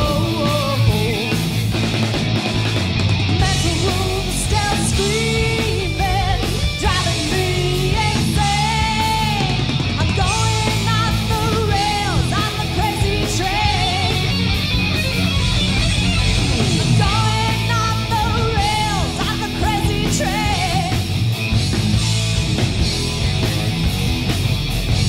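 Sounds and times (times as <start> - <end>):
woman singing: 0.0 - 1.4, 3.4 - 14.3, 17.0 - 21.1
bass guitar: 0.0 - 25.0
distorted electric guitars: 0.0 - 25.0
drums: 0.0 - 25.0.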